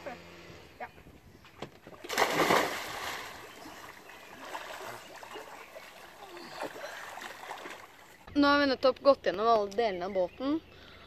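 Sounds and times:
water sloshing: 1.7 - 8.3
person diving into water splash: 2.0 - 5.2.

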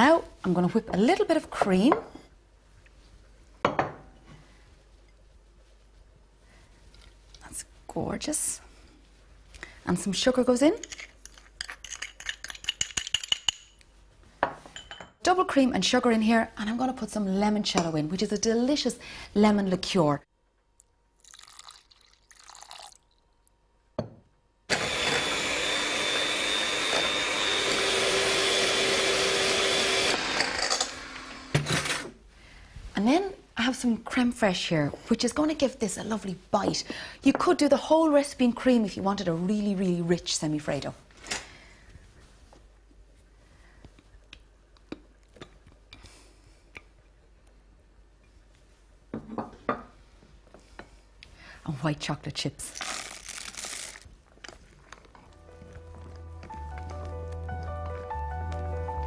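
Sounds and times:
electric mixer whining: 24.7 - 31.6.

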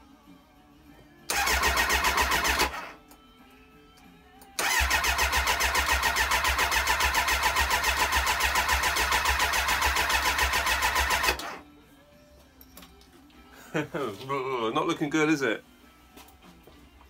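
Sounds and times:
motorcycle engine cranking: 1.3 - 2.9, 4.6 - 11.6.

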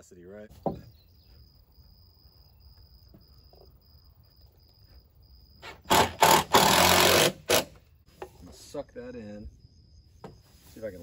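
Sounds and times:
drill driving screw into wood: 5.6 - 7.8.

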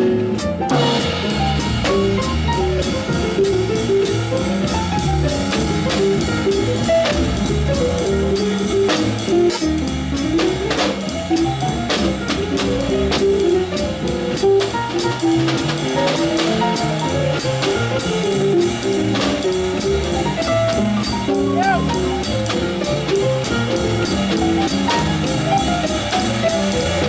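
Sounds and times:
double bass: 0.0 - 27.0
drum kit: 0.0 - 27.0
piano: 0.0 - 27.0
ride cymbal played with sticks: 0.7 - 27.0.

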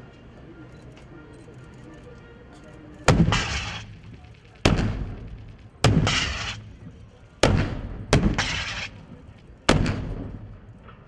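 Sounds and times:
heavy weapon shots echoing: 3.1 - 3.9, 4.6 - 6.7, 7.4 - 9.0, 9.7 - 10.5.

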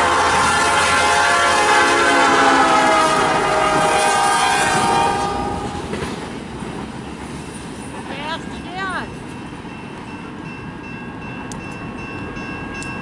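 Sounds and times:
locomotive air horn: 0.0 - 5.9
freight cars rolling on rails: 0.0 - 13.0.

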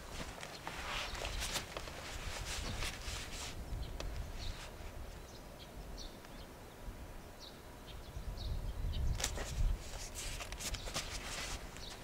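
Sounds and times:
rustling: 0.0 - 5.2, 9.2 - 12.0.

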